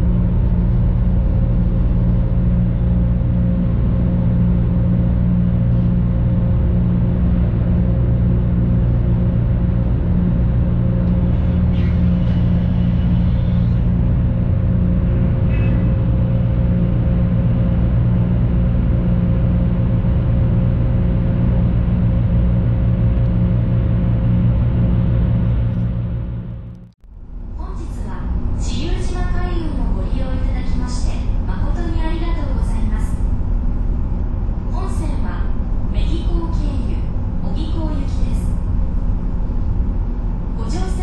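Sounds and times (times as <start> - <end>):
diesel engine drone: 0.0 - 41.0
faint higher hum: 0.0 - 41.0.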